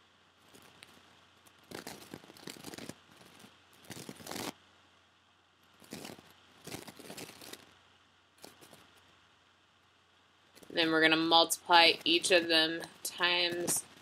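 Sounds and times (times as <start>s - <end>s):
stylus scratching on tablet: 1.6s - 4.5s.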